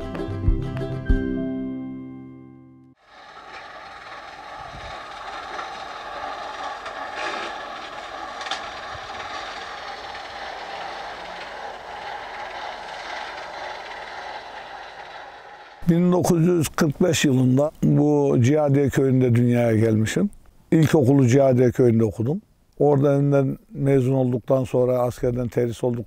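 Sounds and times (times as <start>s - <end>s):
tractor engine running: 3.0s - 17.0s.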